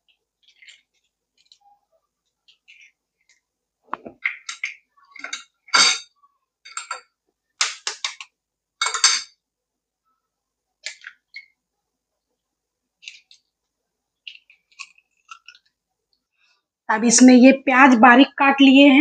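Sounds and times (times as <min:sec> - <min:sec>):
eggshell crackling: 0:00.0 - 0:05.7, 0:10.8 - 0:16.4.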